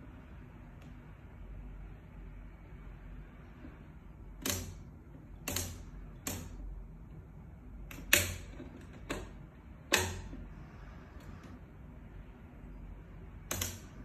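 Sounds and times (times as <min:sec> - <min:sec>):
sharp clicks: 0:13.4 - 0:14.0.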